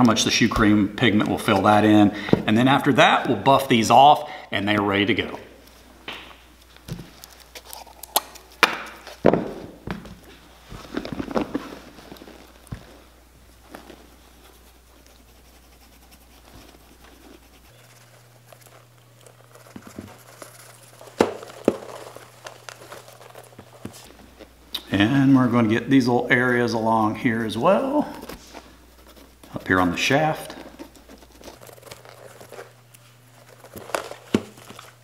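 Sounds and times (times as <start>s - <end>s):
gloved hands scuffing: 8.7s - 24.6s, 26.1s - 35.0s
boots knocking on workbench: 9.2s - 11.4s.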